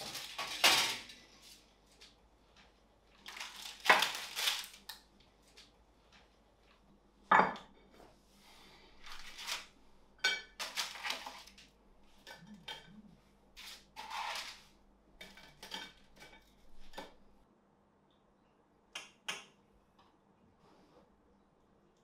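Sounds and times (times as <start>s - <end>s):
toast scraping and clattering on plate: 15.2s - 17.2s.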